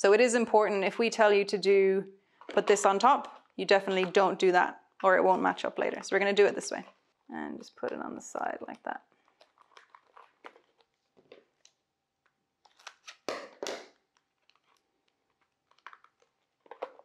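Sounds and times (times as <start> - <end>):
packing tape and cardboard crinkling: 9.0 - 17.0.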